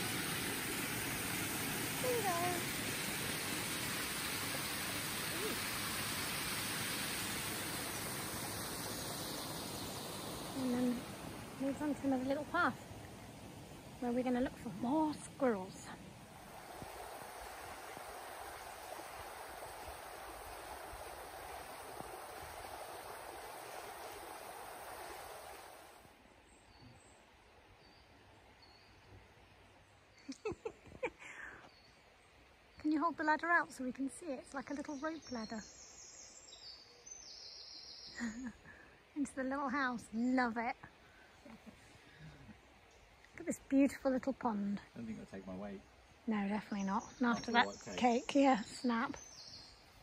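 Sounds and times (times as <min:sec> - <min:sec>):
water rushing through sluice: 0:00.0 - 0:26.1
bird chirping: 0:45.0 - 0:49.9.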